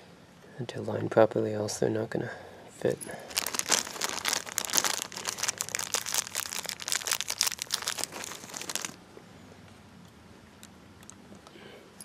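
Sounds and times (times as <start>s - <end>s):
plastic packaging crinkling: 3.1s - 9.0s.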